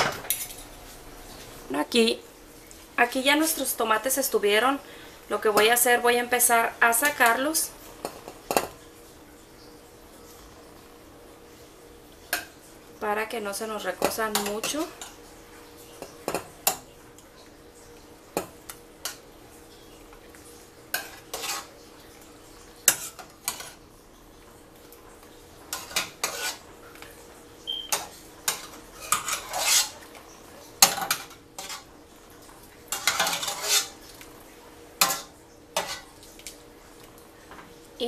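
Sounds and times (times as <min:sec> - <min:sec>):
water splashing in pot: 0:24.6 - 0:37.3.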